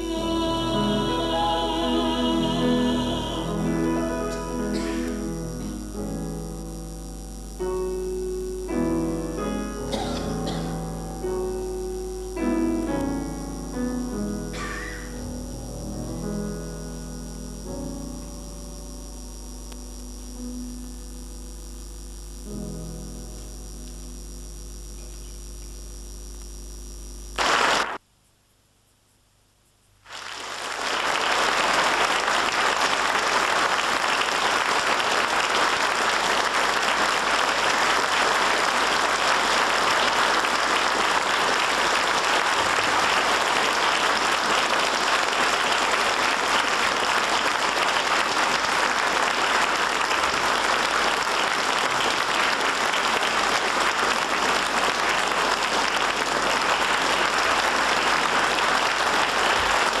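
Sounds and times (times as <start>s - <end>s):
audience applauding: 27.4s - 28.0s, 30.1s - 60.0s.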